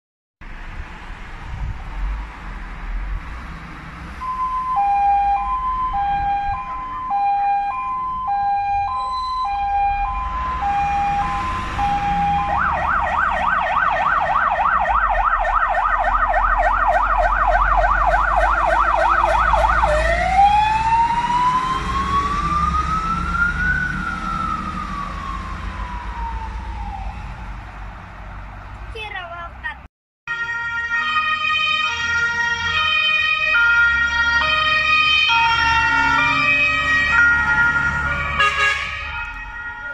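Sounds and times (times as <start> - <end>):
truck engine rumbling: 0.4 - 29.9
electronic siren: 4.2 - 27.5, 30.3 - 39.9.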